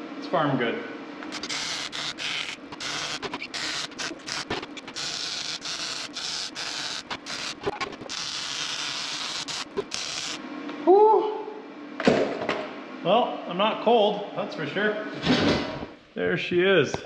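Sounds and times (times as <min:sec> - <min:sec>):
welding arc hissing: 0:01.3 - 0:10.4.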